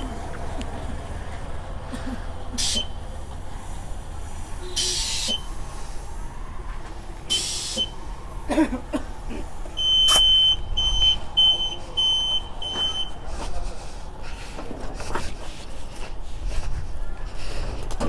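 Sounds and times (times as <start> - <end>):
compressed air hissing: 2.6 - 6.4, 7.3 - 8.1
air pump beeping: 7.3 - 8.0, 9.8 - 13.2.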